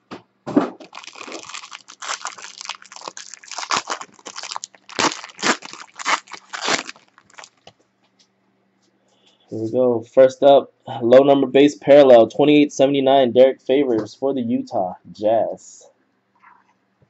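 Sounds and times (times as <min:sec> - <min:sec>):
foil wrapper tearing and crinkling: 0:00.8 - 0:07.6.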